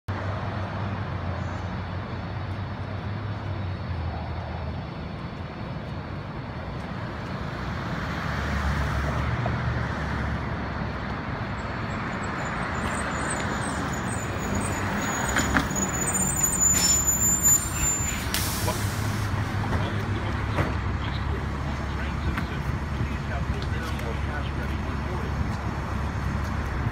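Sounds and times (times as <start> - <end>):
bus engine droning: 8.8 - 26.9
high brake squeal: 11.8 - 19.4.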